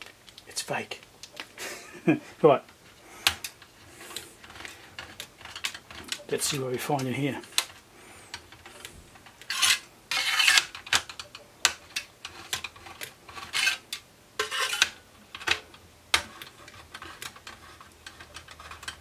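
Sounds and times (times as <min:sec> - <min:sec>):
hex wrench scraping and clicking: 0:07.5 - 0:15.6.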